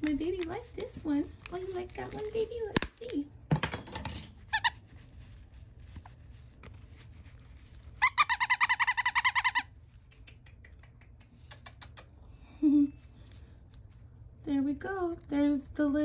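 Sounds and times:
dog toy squeaking: 8.0 - 9.7.

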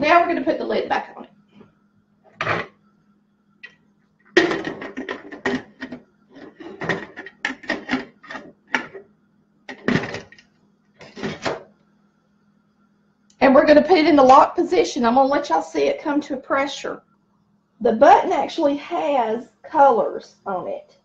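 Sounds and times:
metal lid clinking and scraping: 4.4 - 9.0.

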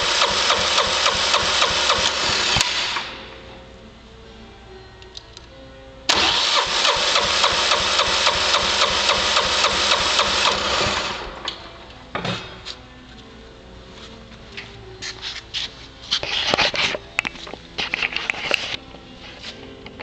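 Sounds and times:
engine cranking with starter: 0.0 - 3.2, 6.1 - 11.6.

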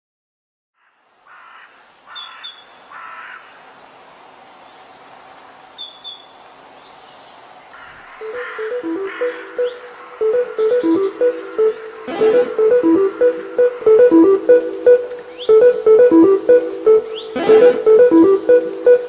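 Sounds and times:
harsh caw-like bird calls: 0.8 - 3.6, 7.7 - 8.2
steady outdoor hiss: 0.8 - 19.0.

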